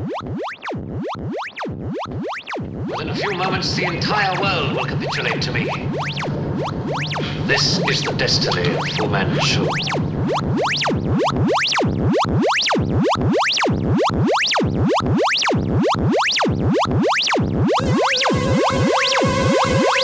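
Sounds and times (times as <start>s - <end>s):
synthesizer pitch sweep: 0.0s - 20.0s
low synth drone: 2.6s - 13.1s, 17.7s - 20.0s.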